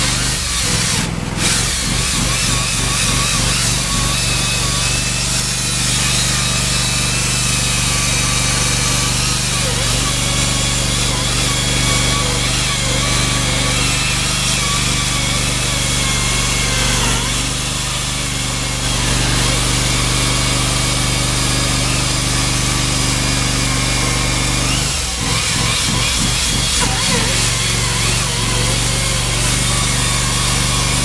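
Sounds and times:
chainsaw grinding through concrete: 0.0 - 31.0.

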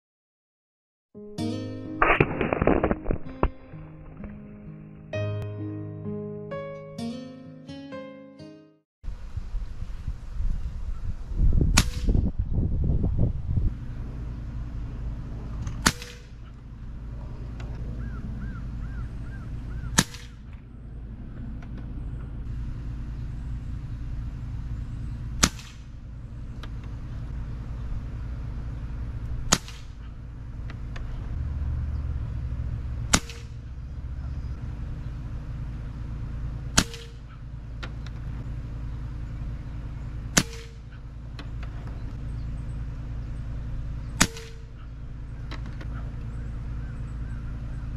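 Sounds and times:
air rifle shots: 11.7 - 12.3, 15.6 - 16.6, 19.8 - 20.7, 25.4 - 26.0, 29.4 - 30.2, 33.1 - 33.7, 36.7 - 37.4, 40.3 - 41.0, 44.1 - 44.9.

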